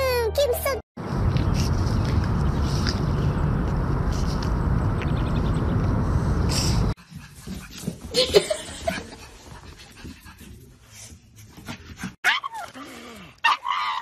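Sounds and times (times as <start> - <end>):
dogs whining and yipping: 12.2 - 12.8.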